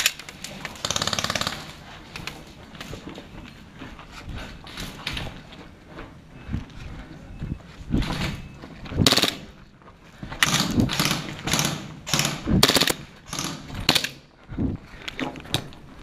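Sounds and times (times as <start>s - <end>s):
airsoft pistol firing bursts: 9.0s - 9.5s, 10.4s - 14.2s.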